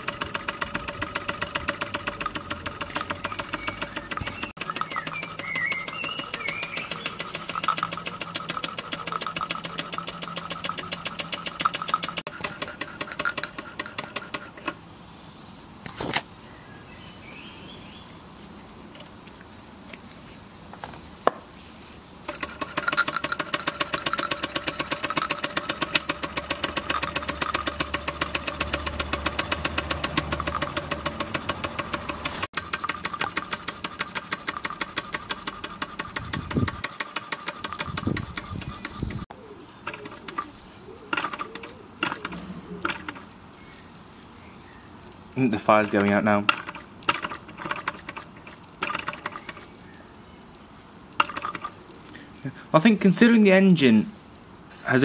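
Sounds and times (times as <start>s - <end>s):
sharp clicks: 0.0s - 14.8s, 22.3s - 39.0s, 39.8s - 43.4s, 45.4s - 49.8s, 51.2s - 52.2s
steam engine exhaust beating: 22.3s - 39.2s.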